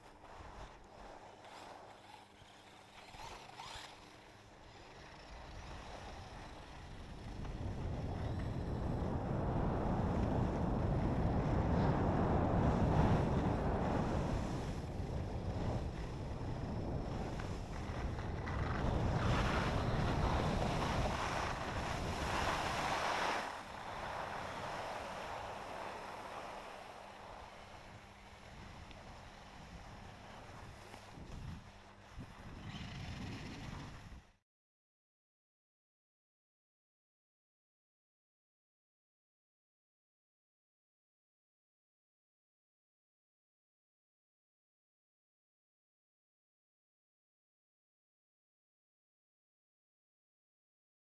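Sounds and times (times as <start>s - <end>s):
wind rushing over microphone: 7.0s - 34.3s
skis hissing on wet snow: 19.2s - 29.8s.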